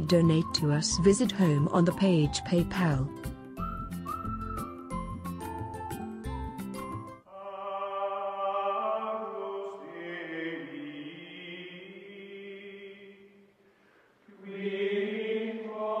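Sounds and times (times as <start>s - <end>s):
choir-like chanting music: 7.3s - 13.4s, 14.3s - 16.0s.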